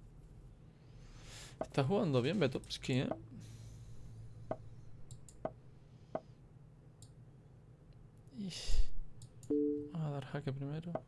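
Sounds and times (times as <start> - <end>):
person breathing out sharply: 0.9 - 1.6
computer mouse clicks: 5.1 - 5.6.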